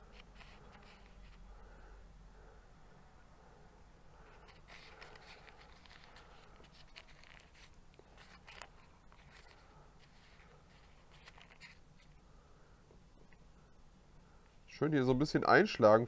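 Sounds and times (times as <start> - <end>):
hands rustling dough: 0.0 - 1.6, 4.2 - 12.2.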